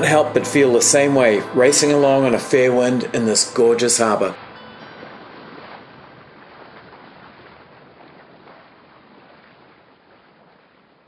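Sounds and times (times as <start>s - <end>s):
water rushing along hull: 0.0s - 11.0s.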